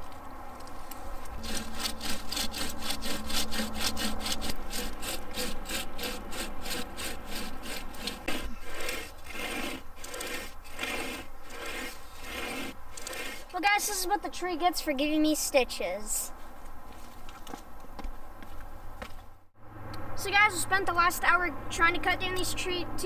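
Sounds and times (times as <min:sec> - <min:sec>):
chain saw rasping through wood: 0:00.8 - 0:14.0.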